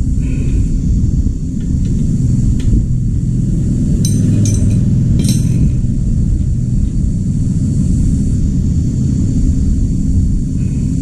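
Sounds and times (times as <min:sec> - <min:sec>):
steady low rumble: 0:00.0 - 0:11.0
metal wrenches clinking: 0:04.0 - 0:05.7.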